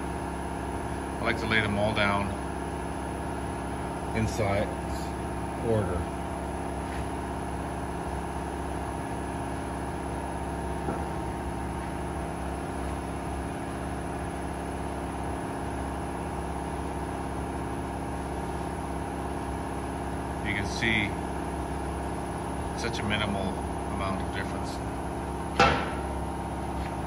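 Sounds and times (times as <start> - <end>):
machine humming: 0.0 - 27.0.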